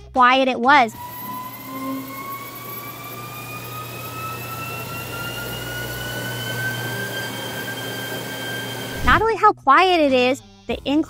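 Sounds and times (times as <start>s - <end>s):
treadmill motor whine rising: 0.9s - 9.2s
low hum: 0.9s - 9.3s.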